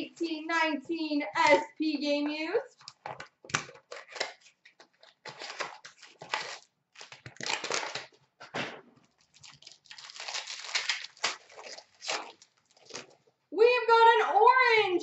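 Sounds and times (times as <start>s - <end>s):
foil wrapper crinkling and tearing: 2.8s - 8.2s, 9.1s - 13.3s.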